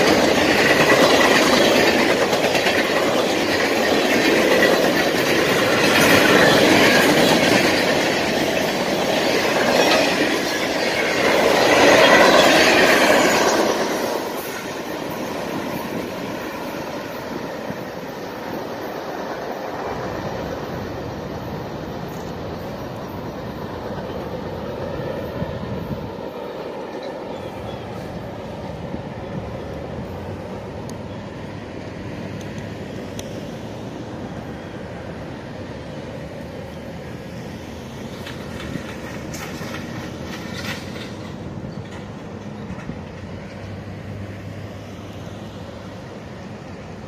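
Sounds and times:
freight train rumble and clatter: 0.0s - 47.0s.

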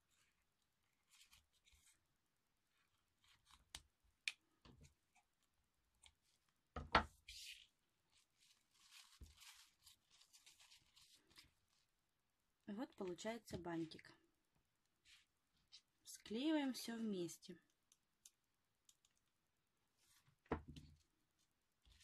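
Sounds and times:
ribbon rustling: 0.0s - 2.1s, 7.2s - 12.0s.

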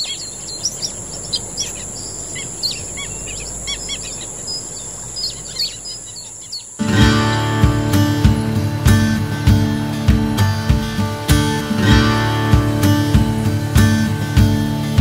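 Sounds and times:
wild birds chirping and singing: 0.0s - 12.0s
acoustic guitar music: 6.8s - 15.0s.

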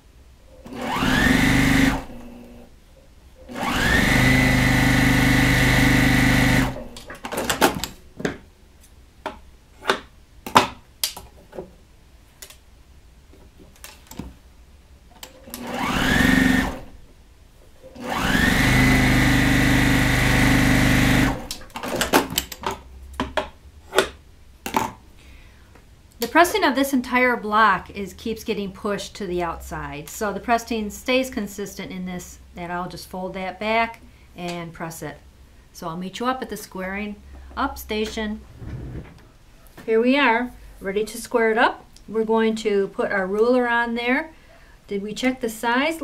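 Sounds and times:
sewing machine whining: 0.6s - 2.6s, 3.5s - 7.0s, 15.5s - 16.9s, 17.9s - 22.0s
fabric rustling: 38.4s - 39.4s.

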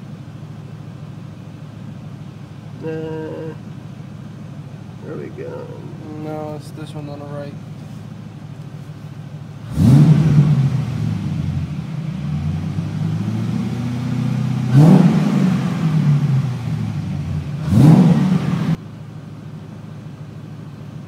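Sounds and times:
car engine revving: 8.9s - 18.8s.

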